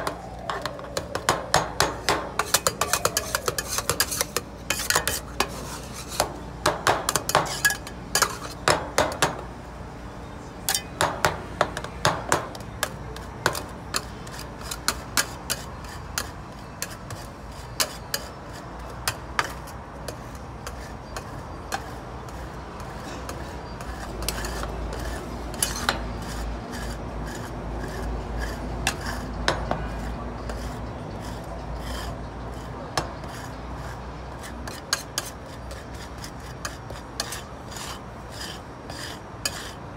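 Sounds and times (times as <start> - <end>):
metal spatulas tapping on steel: 1.2 - 5.5, 10.7 - 14.1
spatulas scraping on steel plate: 1.8 - 9.4, 10.7 - 11.4, 12.0 - 39.8.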